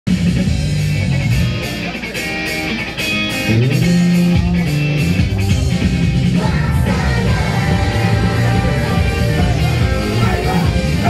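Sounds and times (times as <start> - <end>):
pop song over loudspeakers: 5.2 - 11.0.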